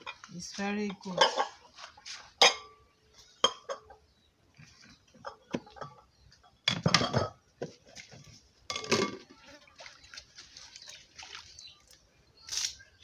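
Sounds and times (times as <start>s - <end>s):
bowls and utensils knocking: 3.4s - 4.0s, 5.2s - 7.4s, 8.7s - 9.4s.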